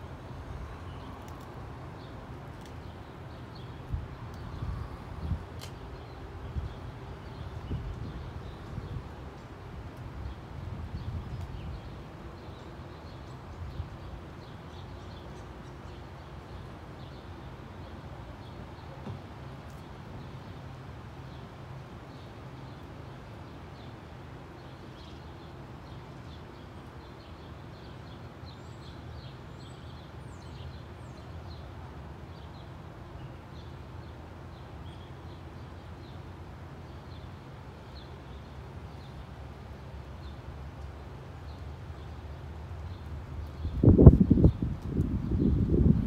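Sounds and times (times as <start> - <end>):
small birds chirping: 0.0 - 21.5, 22.1 - 46.0
low outdoor rumble: 0.0 - 22.3.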